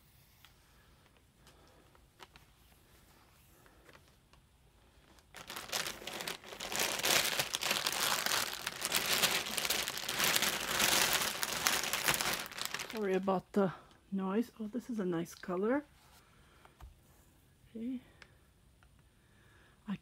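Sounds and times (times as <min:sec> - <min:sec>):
plastic bag crinkling: 0:05.0 - 0:13.3.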